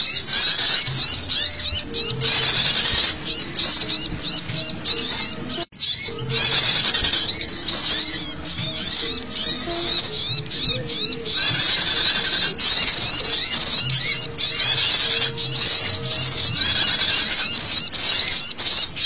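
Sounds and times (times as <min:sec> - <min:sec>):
small songbirds chirping: 0:00.0 - 0:19.0.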